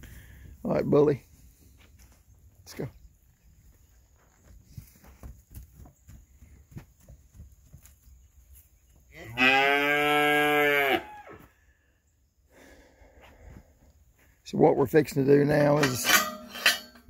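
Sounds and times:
calf bawling moo: 9.2 - 11.3.

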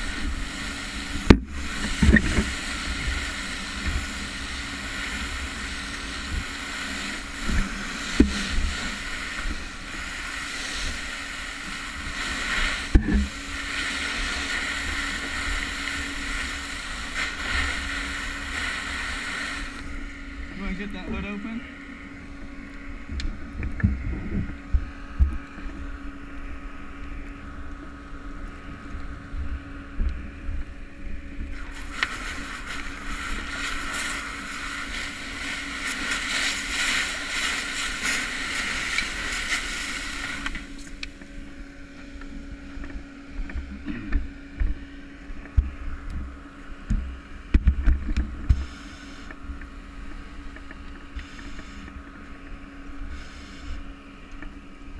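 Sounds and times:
fire hose spraying hiss: 0.0 - 20.0, 31.5 - 41.0, 53.1 - 53.8
low mechanical hum: 0.0 - 54.9.

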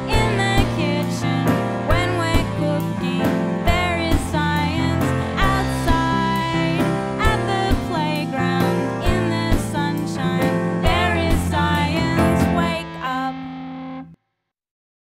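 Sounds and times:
song with singing and beat: 0.0 - 13.4.

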